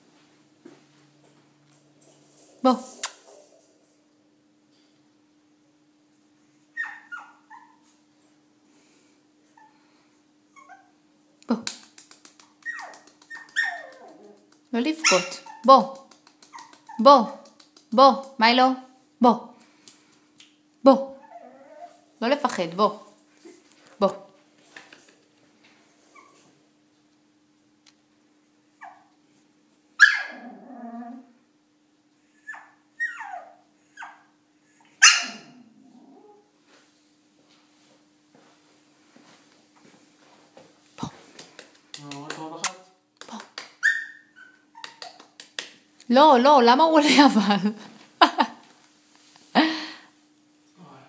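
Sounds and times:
puppy whimpering and yelping: 6.2 - 7.9, 9.5 - 9.8, 10.5 - 11.0, 12.6 - 15.7, 16.4 - 17.0, 21.1 - 22.1, 26.1 - 26.5, 28.8 - 29.1, 30.0 - 31.3, 32.3 - 36.5, 43.8 - 45.2.

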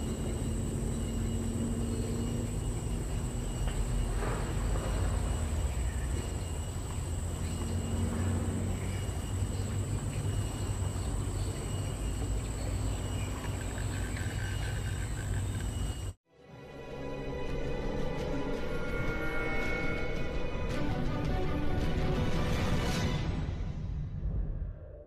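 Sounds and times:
insect drone: 0.0 - 16.2.

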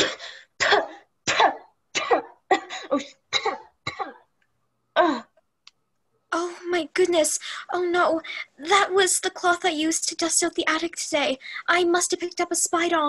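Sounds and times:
person coughing and spluttering: 0.0 - 4.3.

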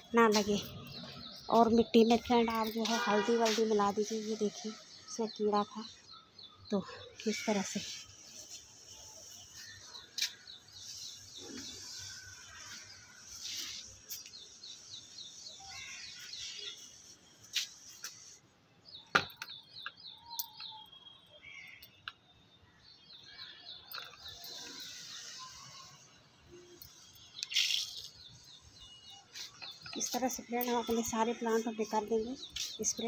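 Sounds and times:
small bird chirping: 22.9 - 33.0.

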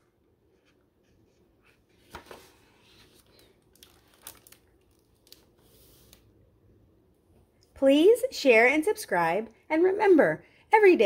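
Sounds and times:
book pages rustling: 0.5 - 6.3.

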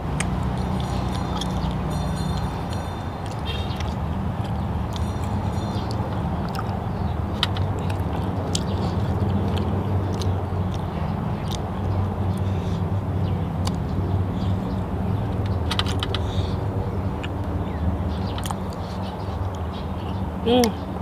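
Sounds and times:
person chewing food: 0.0 - 17.6, 18.2 - 19.7
low hum: 0.0 - 19.1
mouth clicks: 0.1 - 12.8, 13.6 - 13.9.

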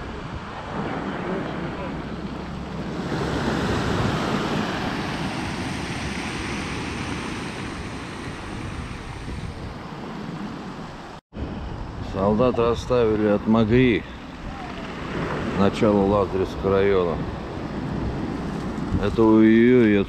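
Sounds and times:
waves breaking on pebble beach: 2.8 - 10.2.

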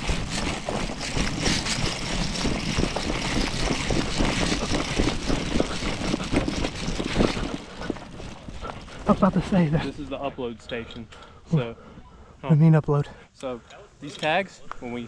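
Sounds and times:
clothing and gear rustling: 0.0 - 10.2
hurried footsteps: 0.0 - 10.2.

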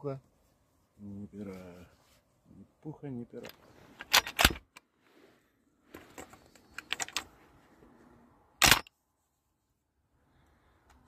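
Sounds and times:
shotgun metallic clicks: 3.4 - 4.8, 8.6 - 8.9.

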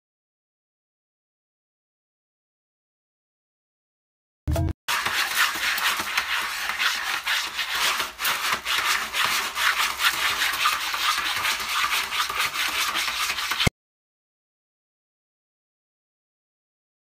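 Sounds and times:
cat scratching pellet litter: 4.9 - 13.7.

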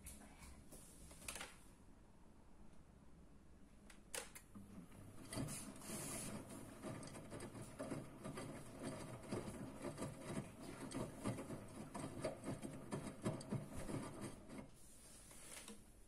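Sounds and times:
laundry tumbling in washing machine: 4.6 - 14.7.

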